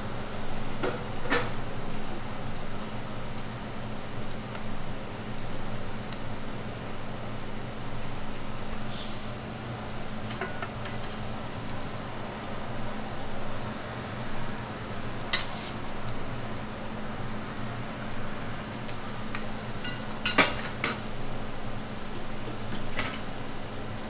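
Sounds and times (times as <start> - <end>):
food sizzling on a griddle: 0.1 - 24.0
metal spatula scraping griddle: 15.3 - 15.8.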